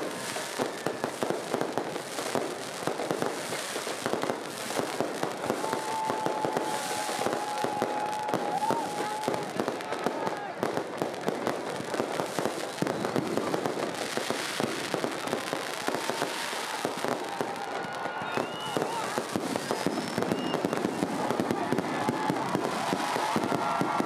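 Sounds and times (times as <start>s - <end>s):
fireworks bangs and crackling: 0.0s - 24.0s
fireworks whistling: 0.0s - 24.0s.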